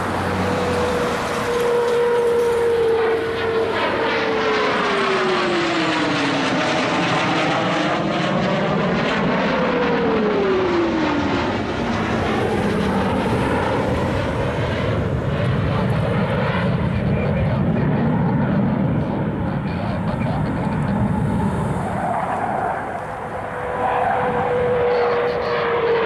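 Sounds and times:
jet flying past: 0.0 - 26.0.

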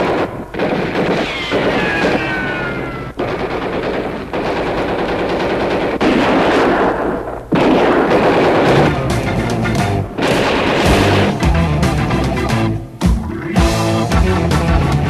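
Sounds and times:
machine-gun fire: 0.0 - 9.4, 10.2 - 11.6
falling whistle: 1.2 - 3.1.

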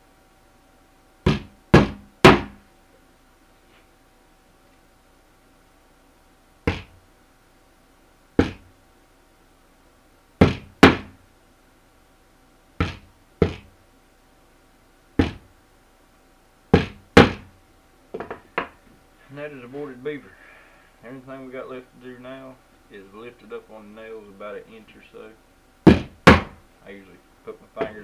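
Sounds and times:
hammer driving nails into wood: 1.3 - 2.6, 6.7 - 7.0, 8.4 - 8.7, 10.4 - 11.2, 12.8 - 13.7, 15.2 - 15.4, 16.8 - 17.5, 25.9 - 26.6.

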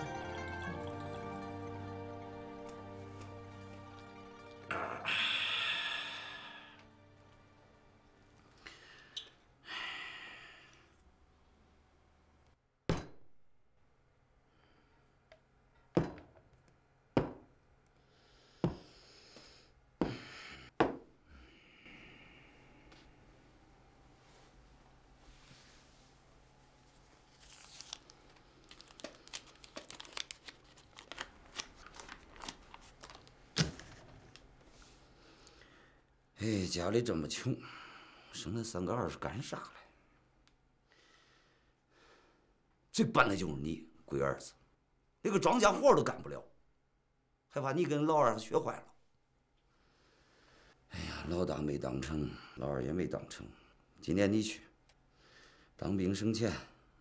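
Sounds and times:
person sighing: 4.6 - 6.9, 8.6 - 10.9
paper banknotes crinkling: 27.0 - 34.4.

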